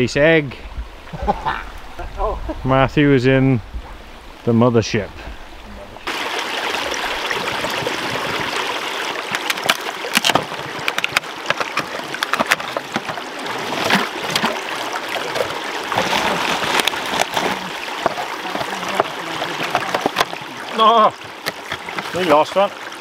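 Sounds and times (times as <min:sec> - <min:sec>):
stream trickling over stones: 0:05.3 - 0:23.0
cans clinking on rocks in water: 0:09.3 - 0:22.6.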